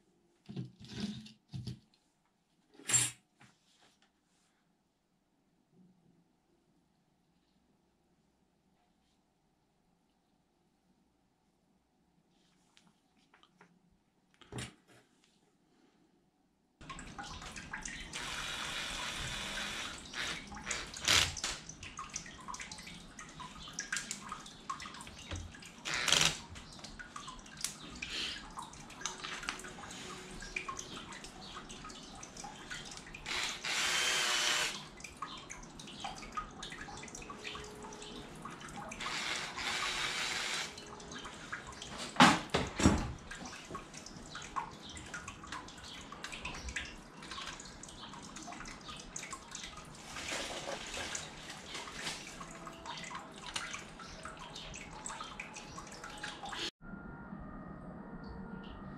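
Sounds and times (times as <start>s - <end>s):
cordless drill bursts: 18.2s - 21.2s, 33.3s - 34.8s, 39.0s - 40.7s.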